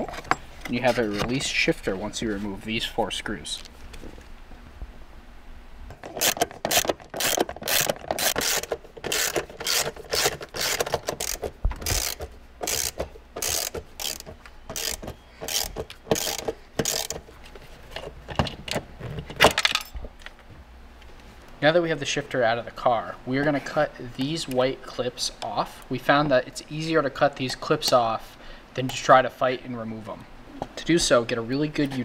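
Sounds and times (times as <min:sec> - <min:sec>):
hand ratchet clicking: 0:06.0 - 0:17.2.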